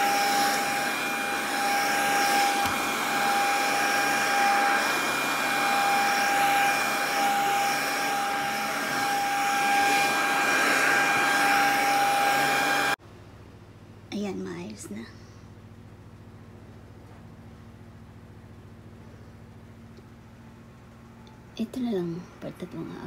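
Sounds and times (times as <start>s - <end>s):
handheld vacuum cleaner running: 0.0s - 13.0s.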